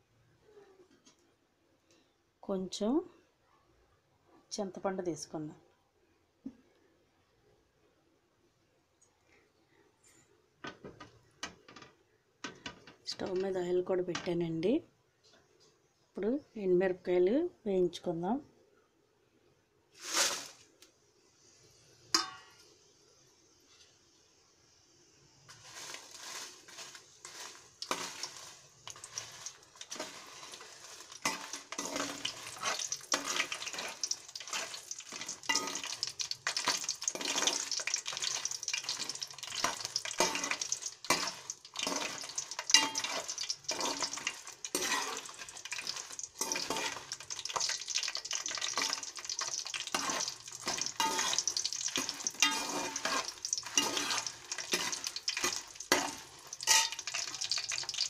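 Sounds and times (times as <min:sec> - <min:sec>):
chillies sizzling in hot oil: 0:12.5 - 0:14.8, 0:19.9 - 0:58.0
metal spoon scraping a pan: 0:25.5 - 0:58.0.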